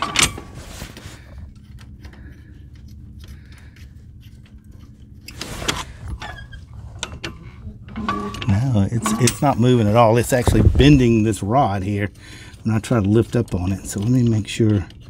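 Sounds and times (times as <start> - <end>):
metal linkage clinking and rattling: 0.0 - 0.6, 1.5 - 15.0
low hum: 4.2 - 12.5.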